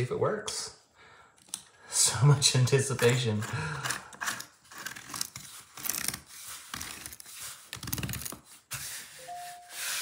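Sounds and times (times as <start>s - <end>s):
plastic clicks and scrapes on tile: 2.9s - 8.9s.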